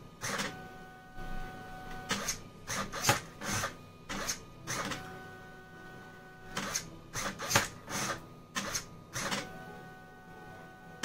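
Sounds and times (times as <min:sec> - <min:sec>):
stepper motor whine: 0:00.0 - 0:11.0
servo buzzing bursts: 0:02.0 - 0:10.2.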